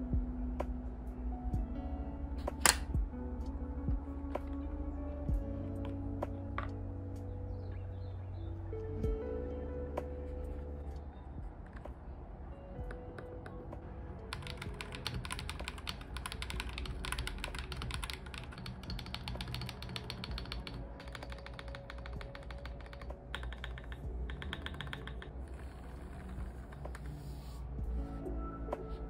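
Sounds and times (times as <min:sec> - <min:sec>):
mechanical keyboard key clacks: 0:14.3 - 0:25.3.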